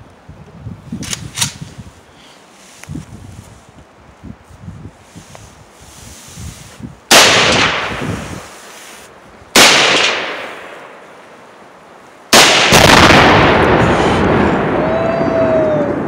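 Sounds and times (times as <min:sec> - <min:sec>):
gunshots echoing: 0:07.1 - 0:08.0, 0:09.6 - 0:11.0, 0:12.3 - 0:14.8
heavy explosion rumbling: 0:12.4 - 0:16.0.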